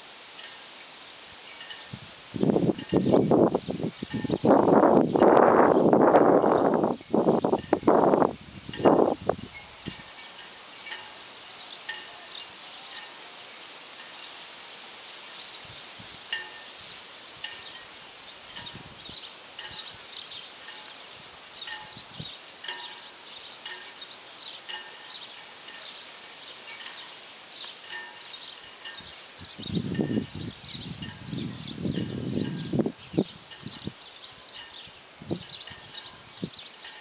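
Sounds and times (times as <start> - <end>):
faint outdoor background noise: 0.0 - 37.0
birds chirping: 0.4 - 37.0.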